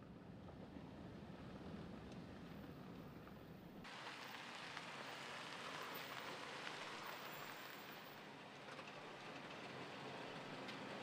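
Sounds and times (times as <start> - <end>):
tyres hissing on gravel road: 3.9 - 11.0.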